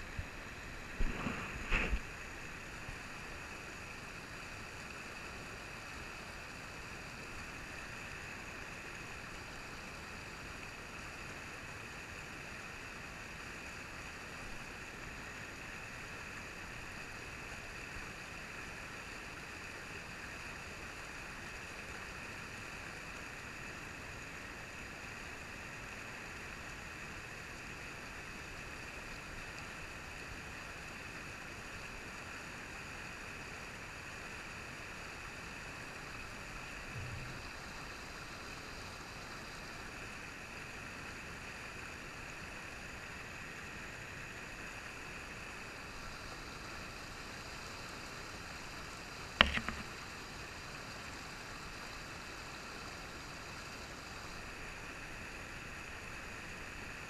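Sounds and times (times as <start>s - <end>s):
water rushing over rocks: 0.0s - 6.9s, 48.6s - 50.2s.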